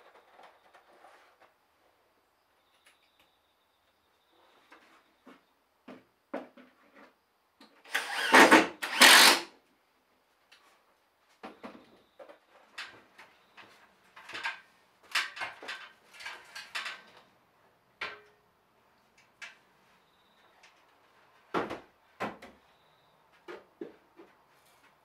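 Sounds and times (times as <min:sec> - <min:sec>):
objects clattering and rustling: 0:11.4 - 0:17.3.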